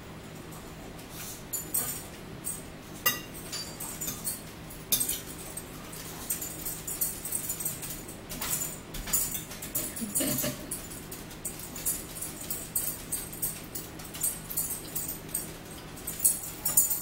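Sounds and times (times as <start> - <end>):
metal fork clinking on a plate: 1.6 - 5.4, 16.1 - 17.0.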